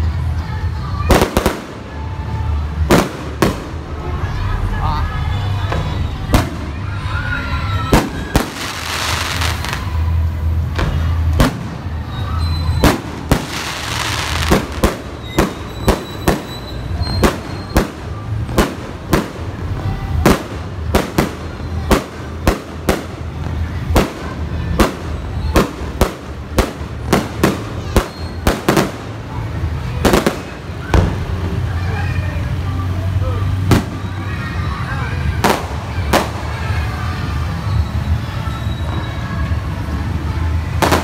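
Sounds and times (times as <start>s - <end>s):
hissing firework crackle: 6.3s - 32.2s.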